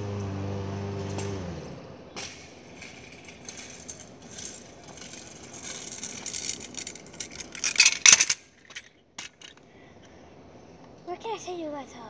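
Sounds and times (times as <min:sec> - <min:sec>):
kick scooter rolling on pavement: 0:00.0 - 0:09.6
loud clatter: 0:02.2 - 0:09.6.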